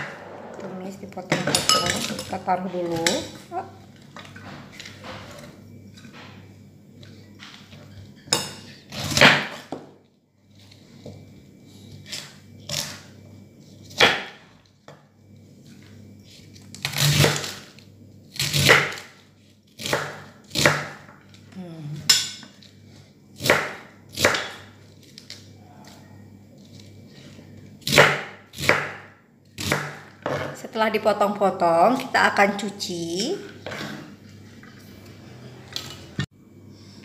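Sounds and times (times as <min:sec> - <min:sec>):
knife chopping cabbage on wood: 0:18.3 - 0:19.2, 0:19.8 - 0:21.1, 0:23.4 - 0:24.7, 0:27.8 - 0:30.4.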